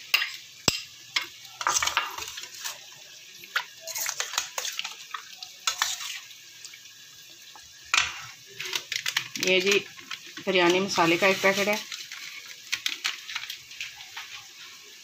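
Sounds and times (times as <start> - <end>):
wet scrapes against metal bowl: 5.7 - 6.2.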